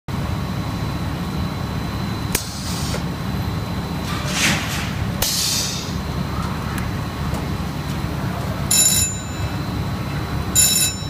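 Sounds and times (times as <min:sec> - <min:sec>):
machinery low drone: 0:00.1 - 0:11.0
short hissing bursts: 0:02.4 - 0:03.0, 0:05.2 - 0:06.0.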